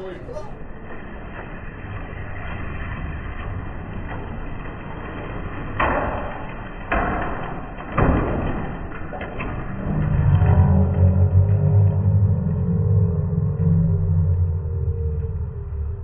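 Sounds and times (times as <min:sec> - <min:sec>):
loud rushes of slot cars: 0:00.0 - 0:14.4.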